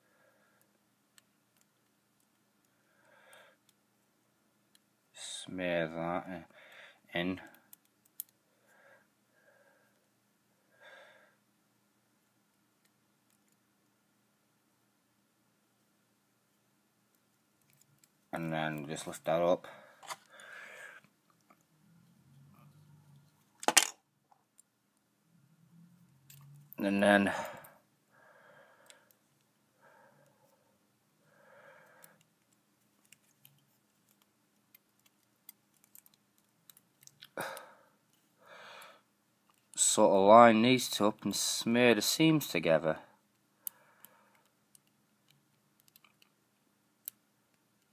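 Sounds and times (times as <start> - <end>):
small plastic clicks and ticks: 31.9 - 37.4, 43.6 - 46.4.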